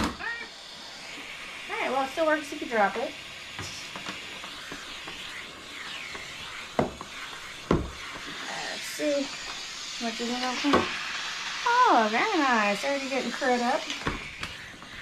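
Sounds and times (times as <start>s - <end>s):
steam mop hissing: 0.0s - 15.0s.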